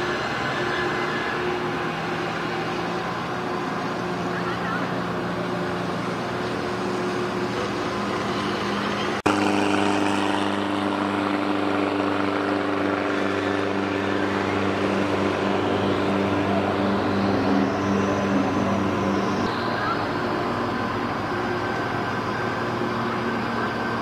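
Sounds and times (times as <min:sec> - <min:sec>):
boat engine drone: 0:00.0 - 0:24.0
small boat motor humming: 0:00.0 - 0:24.0.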